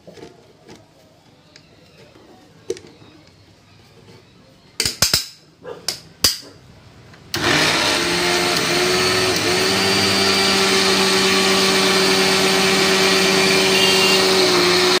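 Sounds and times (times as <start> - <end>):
mixer grinder motor whine: 7.3 - 15.0.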